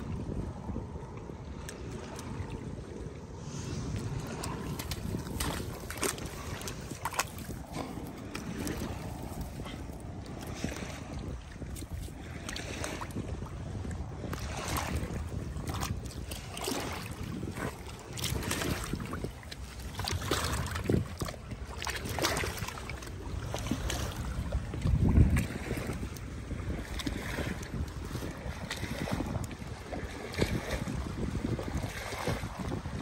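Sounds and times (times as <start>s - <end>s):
wind noise on microphone: 0.0s - 33.0s
dog splashing through water: 4.0s - 11.0s, 19.8s - 24.4s.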